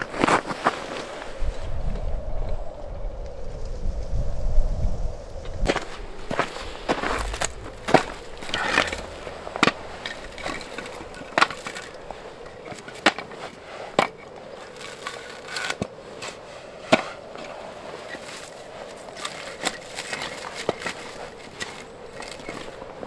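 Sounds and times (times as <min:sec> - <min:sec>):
wooden logs knocking together: 0:05.7 - 0:23.0.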